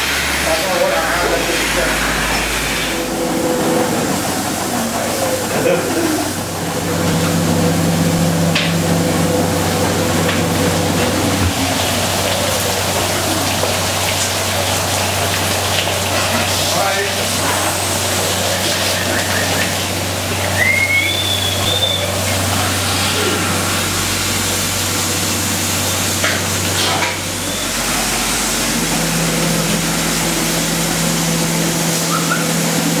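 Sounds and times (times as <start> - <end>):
machinery hum: 0.0 - 33.0
water hissing and splashing: 9.0 - 33.0.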